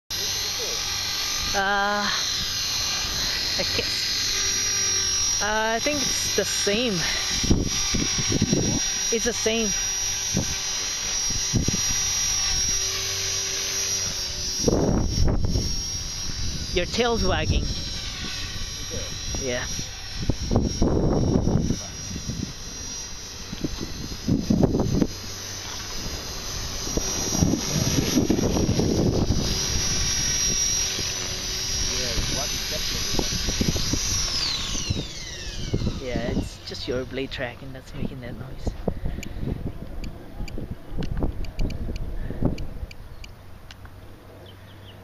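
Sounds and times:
rc helicopter whining: 0.1s - 45.0s
rotor hum: 0.1s - 45.0s.

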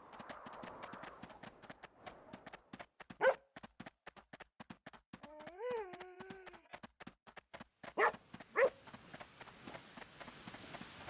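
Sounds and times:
dog barking: 3.2s - 3.4s, 8.0s - 8.8s.

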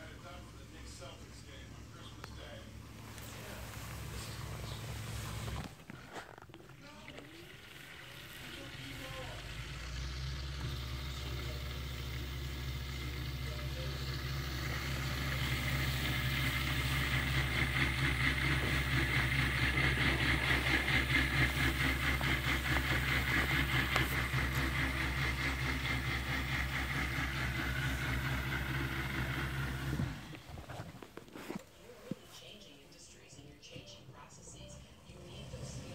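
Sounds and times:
dishwasher motor hum: 0.0s - 32.6s
water rushing in dishwasher: 6.7s - 10.1s.

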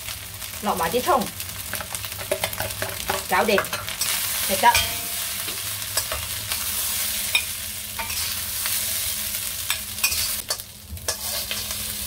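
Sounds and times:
rice sizzling in a wok: 0.0s - 12.0s
metal spatula scraping a wok: 3.7s - 12.0s.

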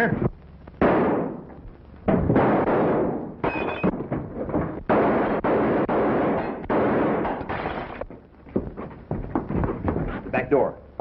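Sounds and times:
quiet knocks: 3.8s - 4.9s, 8.0s - 10.3s.

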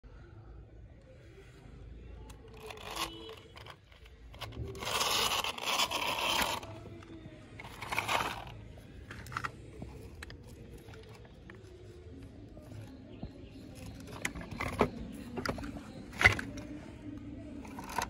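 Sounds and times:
plastic toys scraping on dirt: 2.3s - 11.5s, 13.6s - 16.7s, 17.6s - 18.0s.

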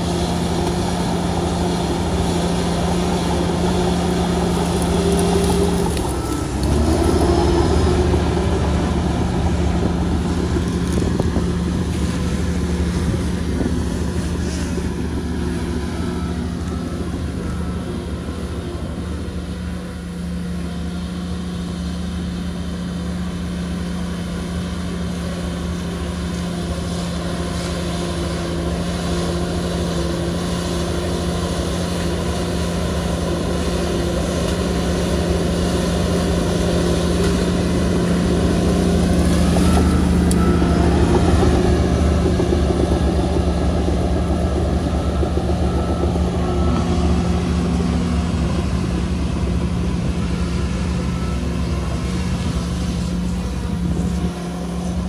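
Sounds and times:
bulldozer diesel engine running: 0.0s - 55.0s.

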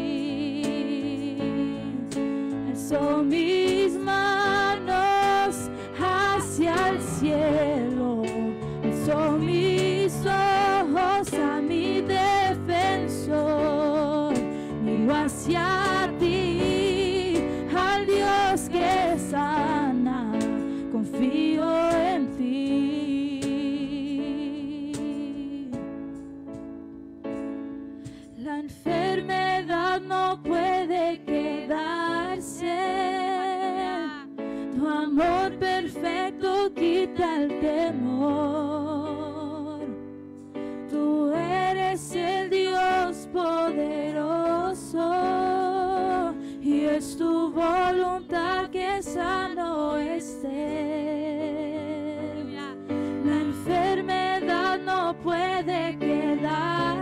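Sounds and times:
keyboard chords: 0.0s - 57.0s
woman singing with vibrato: 2.7s - 25.8s, 40.9s - 57.0s.

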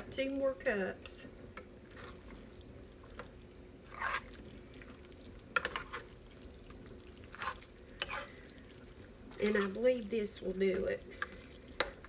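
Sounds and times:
spoon squelching wet mixture: 1.5s - 12.0s.

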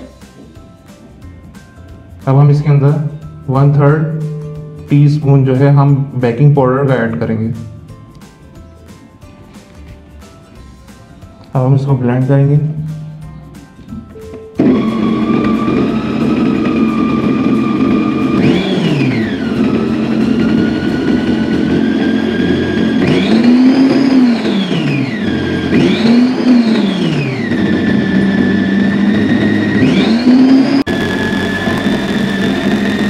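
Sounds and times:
food processor motor whining: 14.6s - 33.0s.

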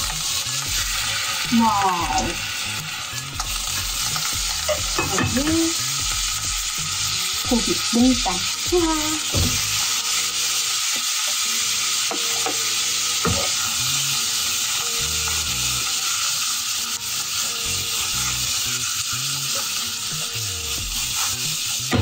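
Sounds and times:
meat sizzling in a pan: 0.0s - 22.0s.

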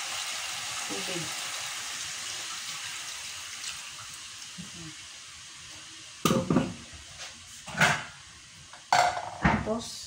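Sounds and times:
water hissing into hot pot: 0.0s - 8.9s
kitchenware clunk: 6.2s - 6.8s, 7.7s - 8.2s, 8.9s - 9.7s.

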